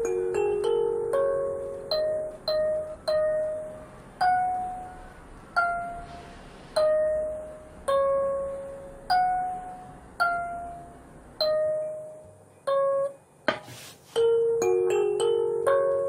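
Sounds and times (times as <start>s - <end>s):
kalimba notes plucked: 0.0s - 6.2s, 6.8s - 13.2s, 14.2s - 16.0s.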